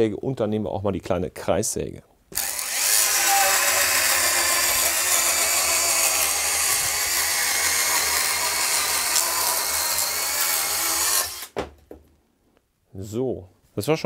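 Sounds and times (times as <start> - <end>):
cordless saw cutting board: 2.4 - 11.6.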